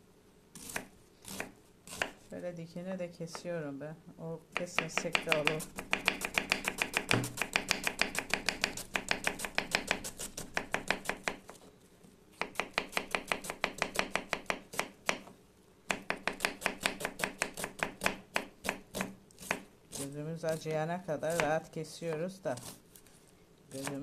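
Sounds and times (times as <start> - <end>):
knife chopping on wooden board: 0.6 - 2.2, 4.6 - 11.5, 12.4 - 15.3, 15.9 - 19.6.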